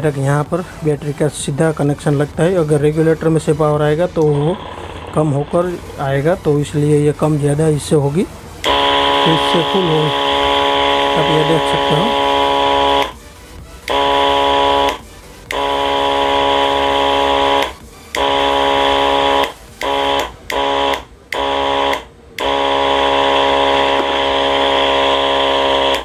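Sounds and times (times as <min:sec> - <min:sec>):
small pump motor running: 0:08.6 - 0:13.2, 0:13.8 - 0:26.0.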